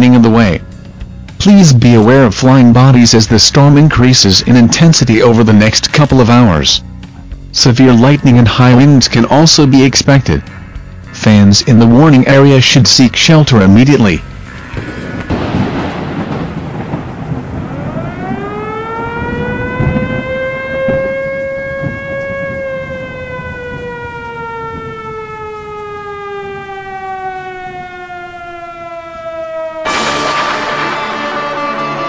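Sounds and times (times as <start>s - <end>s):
music: 0.0s - 16.3s, 20.0s - 32.0s
rain: 14.7s - 20.2s
thunder: 14.8s - 25.2s
warning siren winding: 17.9s - 29.9s.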